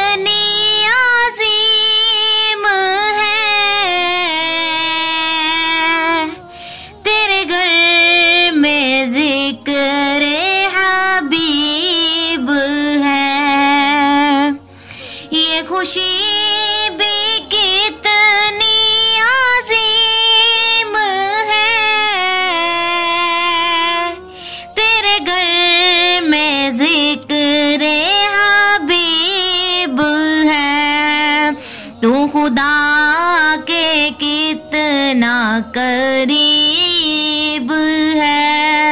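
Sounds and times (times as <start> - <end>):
person singing devotional song: 0.0 - 38.9.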